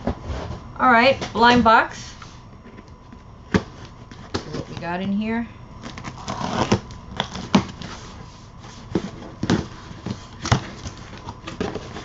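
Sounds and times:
packaging rustling: 5.8s - 12.0s.

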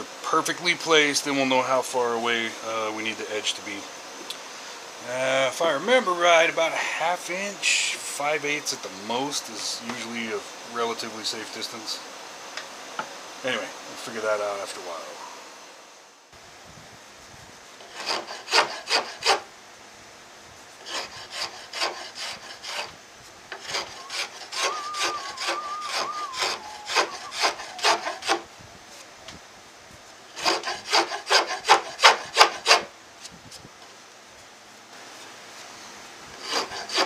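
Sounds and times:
hand rasp scraping wood: 17.8s - 19.4s, 20.8s - 22.9s, 23.5s - 28.5s, 30.3s - 32.9s, 36.3s - 37.0s.

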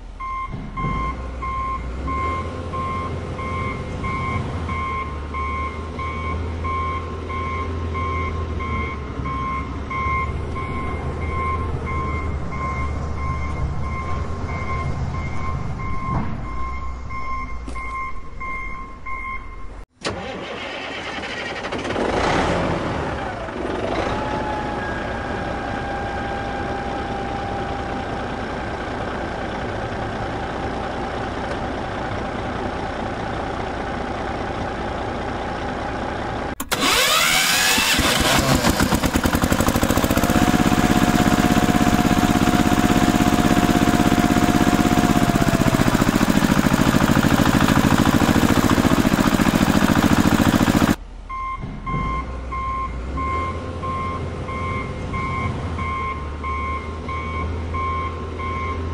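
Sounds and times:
heavy vehicle engine running: 0.0s - 58.9s
reversing alarm beeping: 0.2s - 19.8s, 51.3s - 58.9s
engine starting: 20.0s - 24.5s, 36.6s - 41.4s.

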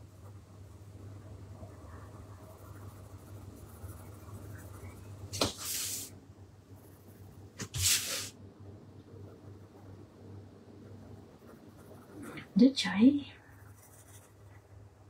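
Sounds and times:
pencil scratching on paper: 1.9s - 6.1s, 6.7s - 8.3s, 11.4s - 12.6s, 13.3s - 14.7s
brief hiss: 7.6s - 8.4s.

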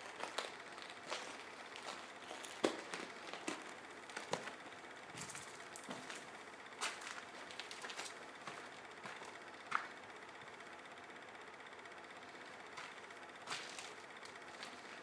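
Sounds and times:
footsteps crunching on gritty concrete: 0.0s - 10.0s, 12.8s - 15.0s.

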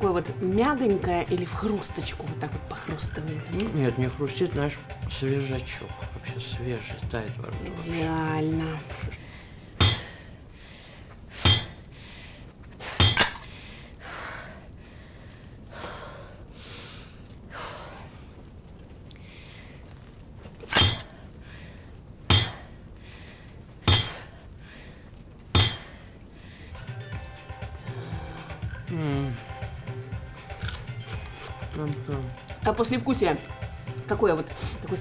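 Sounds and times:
tool blows with metallic clink: 9.8s - 10.3s, 11.4s - 11.9s, 12.9s - 13.5s, 20.7s - 21.2s, 22.3s - 22.7s, 23.9s - 24.4s, 25.6s - 26.1s.

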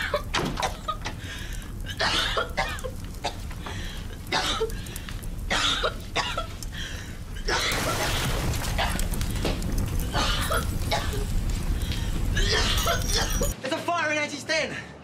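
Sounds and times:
steady low rumble: 0.0s - 13.6s
person coughing and choking: 1.9s - 3.5s, 4.3s - 4.7s, 5.5s - 6.5s, 7.4s - 9.0s, 10.1s - 11.3s, 12.4s - 13.6s.

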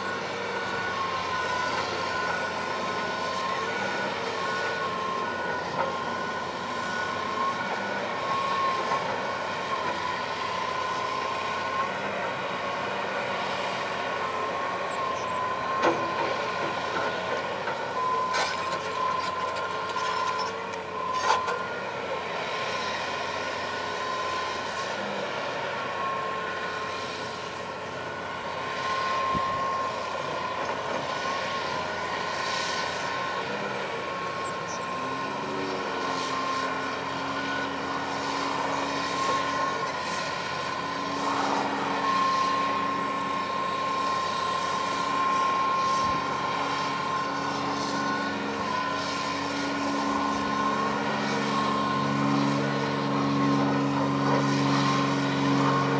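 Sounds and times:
excavator diesel engine running: 0.0s - 55.9s
steady high whine: 26.8s - 55.9s.

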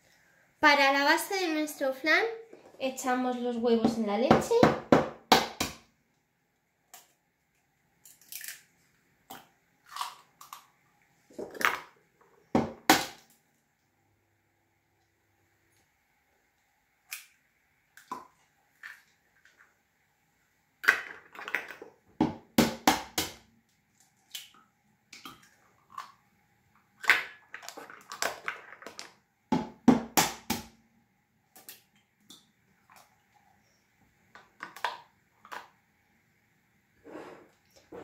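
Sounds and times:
eggshells cracking on a jug: 8.0s - 10.8s, 26.9s - 29.2s.

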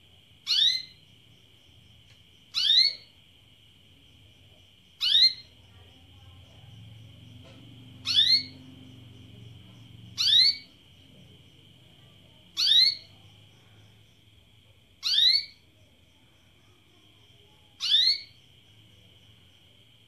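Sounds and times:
canary chirps: 0.4s - 1.2s, 2.4s - 3.2s, 4.9s - 5.8s, 6.4s - 14.0s, 15.0s - 15.7s, 17.6s - 18.6s.

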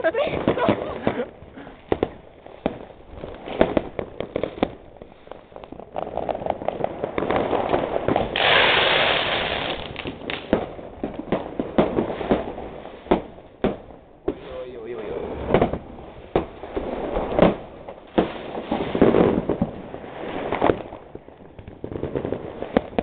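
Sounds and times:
firecrackers and rockets banging: 0.0s - 23.0s
loud hiss: 8.3s - 9.9s.

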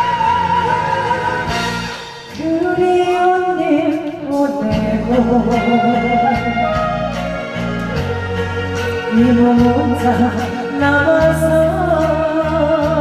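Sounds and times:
backing music with bass and beat: 0.0s - 13.0s
woman singing slow song: 2.3s - 6.8s, 9.0s - 13.0s.

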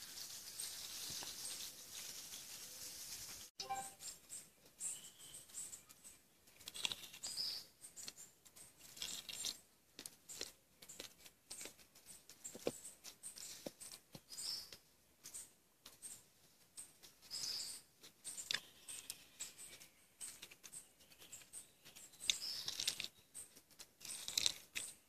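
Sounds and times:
short high chirps: 3.6s - 4.1s.

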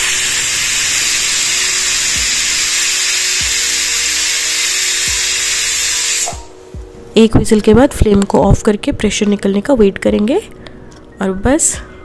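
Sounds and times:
pressure cooker whistling steam hiss: 0.0s - 6.6s.

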